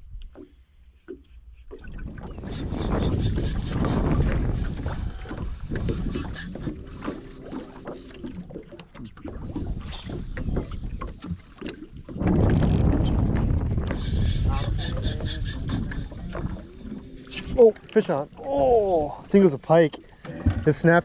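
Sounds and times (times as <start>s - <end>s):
waves lapping at boat hull: 1.1s - 21.0s
wind rumbling on microphone: 1.8s - 7.6s, 9.2s - 17.7s.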